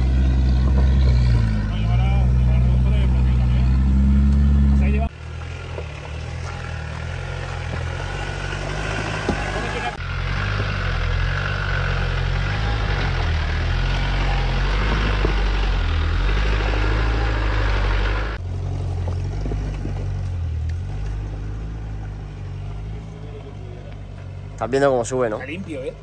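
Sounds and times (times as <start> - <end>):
off-road vehicle engine: 0.0 - 26.0
stones clicking under tyres: 5.2 - 9.6, 13.9 - 16.0, 18.4 - 22.8.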